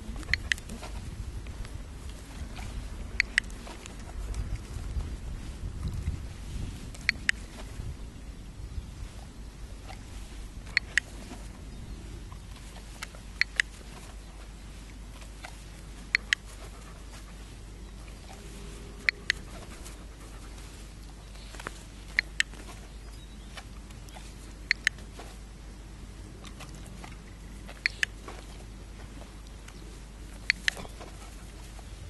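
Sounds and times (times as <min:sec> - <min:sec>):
dog panting: 0:00.0 - 0:01.0, 0:15.4 - 0:22.8, 0:30.4 - 0:32.0
dog-training clicker clicking: 0:00.2 - 0:00.8, 0:03.2 - 0:03.6, 0:07.0 - 0:07.4, 0:10.7 - 0:11.1, 0:13.0 - 0:13.8, 0:16.1 - 0:16.5, 0:19.0 - 0:19.7, 0:22.1 - 0:22.6, 0:24.7 - 0:25.1, 0:27.7 - 0:28.2, 0:30.4 - 0:31.1.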